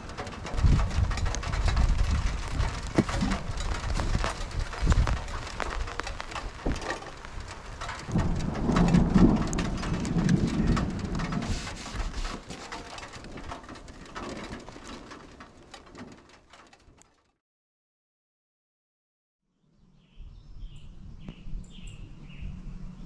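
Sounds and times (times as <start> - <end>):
thunder rumbling: 0.0 - 16.0
heavy rain falling: 0.0 - 16.8.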